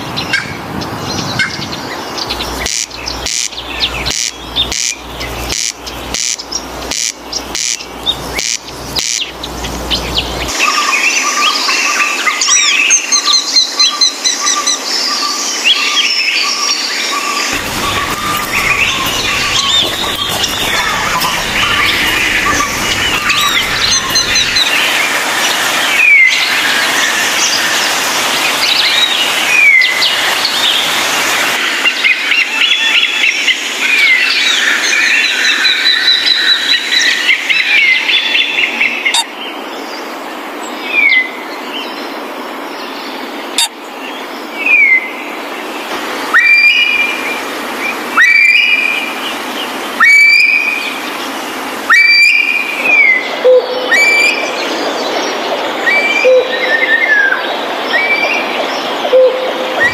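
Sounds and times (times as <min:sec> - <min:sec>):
birds chirping and calling: 0:00.1 - 0:12.9, 0:13.8 - 0:31.0, 0:47.9 - 0:59.9.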